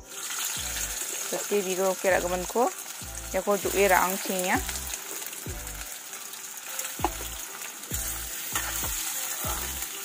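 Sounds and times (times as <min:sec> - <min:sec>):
potatoes sizzling in hot oil: 0:00.0 - 0:10.0
metal spoon scraping a pan: 0:07.1 - 0:10.0.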